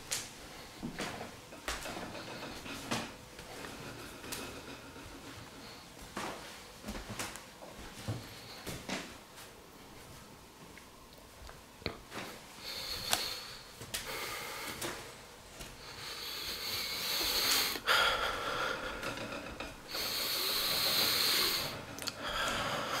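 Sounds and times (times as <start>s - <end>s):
person breathing: 0.4s - 6.0s, 7.9s - 9.0s, 12.1s - 23.0s.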